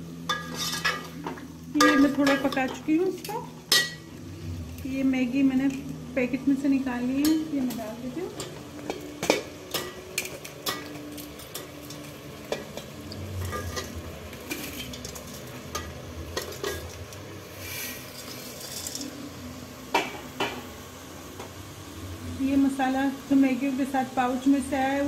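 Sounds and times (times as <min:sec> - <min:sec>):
vegetables sizzling: 0:00.0 - 0:25.0
ladle scraping steel pot: 0:00.3 - 0:02.8, 0:08.9 - 0:17.0.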